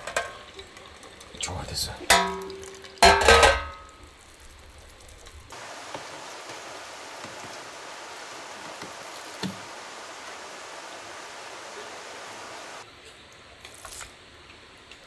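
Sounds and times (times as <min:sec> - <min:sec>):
stream rushing: 0:05.5 - 0:12.8.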